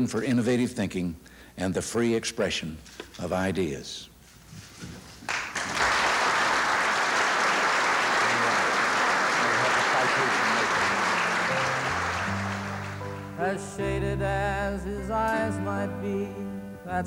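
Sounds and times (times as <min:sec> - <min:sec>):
audience applauding: 0:05.2 - 0:13.4.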